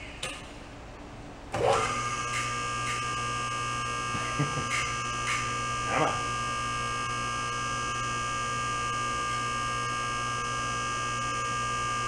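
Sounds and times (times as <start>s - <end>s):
hydraulic pump motor humming: 1.5s - 12.0s
pump whine: 1.5s - 12.0s.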